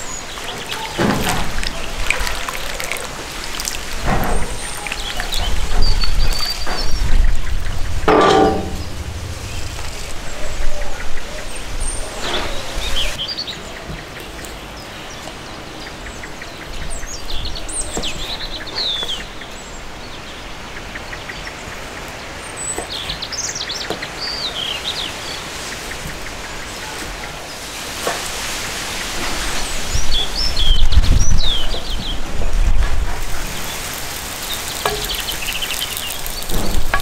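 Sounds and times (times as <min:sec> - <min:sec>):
small birds chirping: 0:00.0 - 0:08.1, 0:29.0 - 0:37.0
skillet clanking on metal grate: 0:08.1 - 0:09.1.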